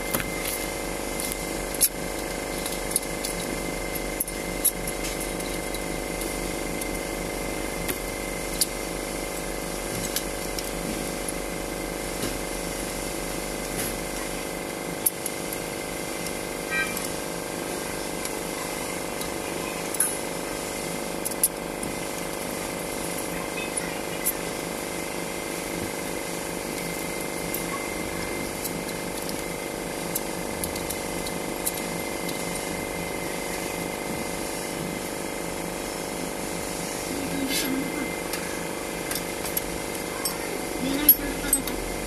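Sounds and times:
steady background hum: 0.0s - 42.0s
hand tools clicking on metal: 0.1s - 7.0s, 21.2s - 22.3s, 26.7s - 33.1s, 39.1s - 41.9s.

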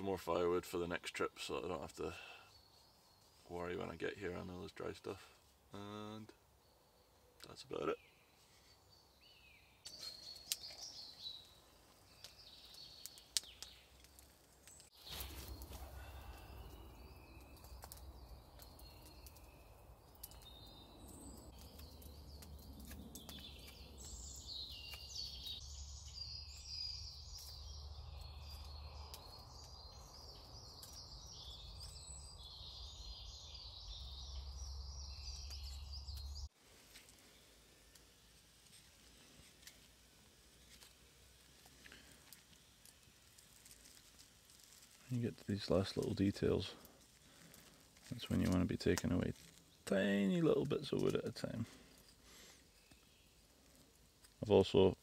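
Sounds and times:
birds chirping and singing: 15.0s - 36.5s.

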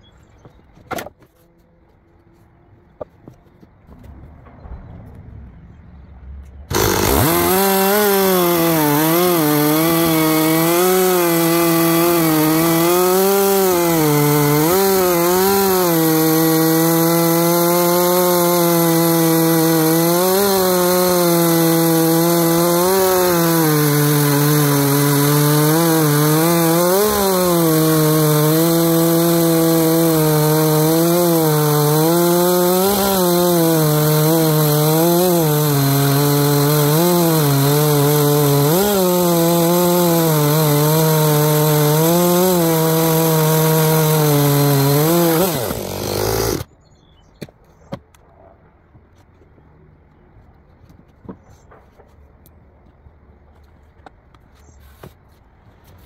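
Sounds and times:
chainsaw cutting a log: 6.7s - 46.7s.

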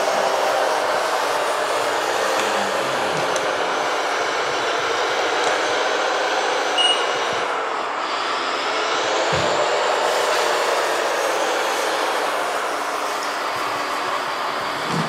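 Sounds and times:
electric drive and hydraulic pump whirring: 0.0s - 15.0s
short high beep: 6.8s - 7.2s.

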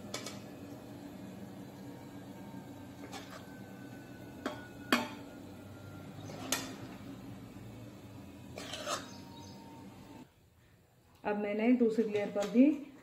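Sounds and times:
metal spoon scraping a bowl: 8.5s - 9.2s.

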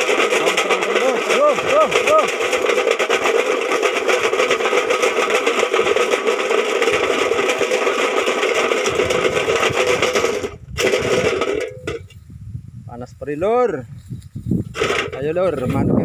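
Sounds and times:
metal tin rattling rapidly: 0.0s - 12.2s, 14.6s - 16.0s.

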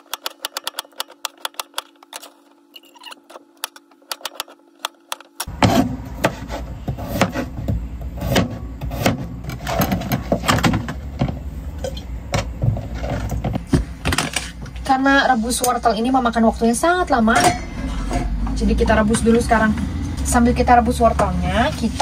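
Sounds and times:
knife chopping on cutting board: 5.5s - 7.6s, 8.2s - 9.3s.

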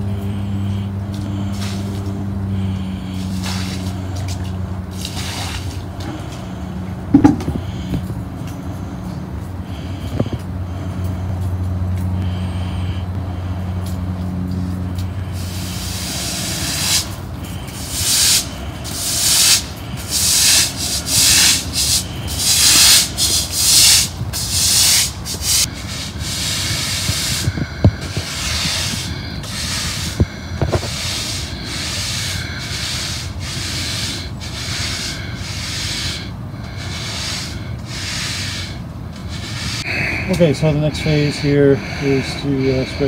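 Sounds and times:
push broom scrubbing wet asphalt: 0.0s - 43.0s
water pushed over pavement: 3.1s - 6.4s, 15.4s - 39.8s.

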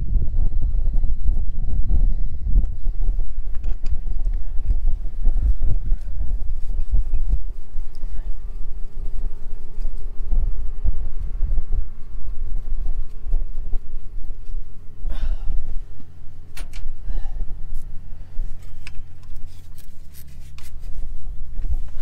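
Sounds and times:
low steady hum: 0.0s - 22.0s
rubbing scrapes: 4.9s - 15.0s, 17.6s - 22.0s.

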